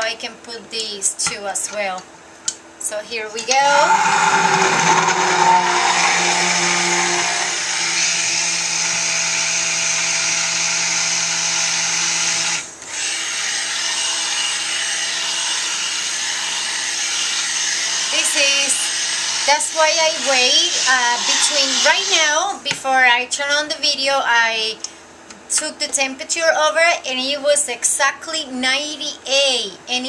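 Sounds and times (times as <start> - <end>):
stick blender motor whirring: 3.5 - 22.4.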